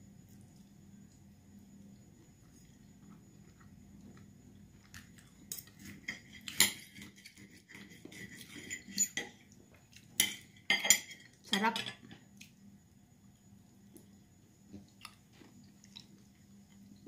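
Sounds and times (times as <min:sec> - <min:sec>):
cutlery clinking on a plate: 0:05.5 - 0:09.4, 0:10.2 - 0:12.0.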